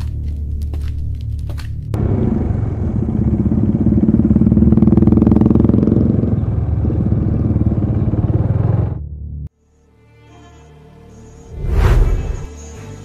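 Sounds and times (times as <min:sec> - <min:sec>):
motorcycle and scooter engines: 0:02.0 - 0:09.0.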